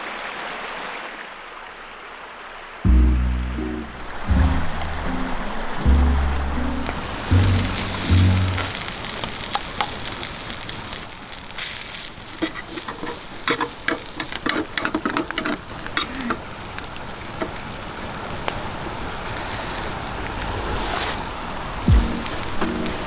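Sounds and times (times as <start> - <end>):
rice sizzling in a pan: 7.2 - 20.1, 20.8 - 21.2
chopsticks scraping a steel pan: 12.3 - 16.4.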